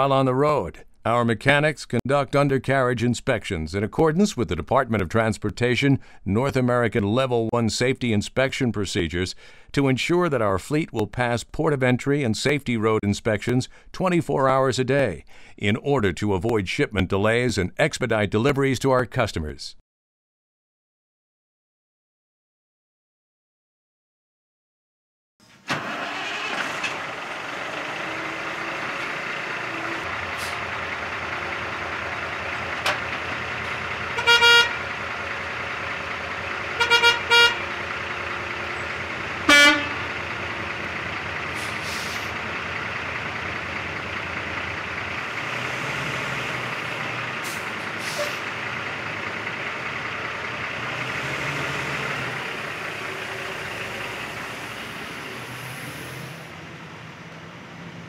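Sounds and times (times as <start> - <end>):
vehicle horn toots: 34.1 - 35.0, 36.7 - 37.9, 39.4 - 40.2.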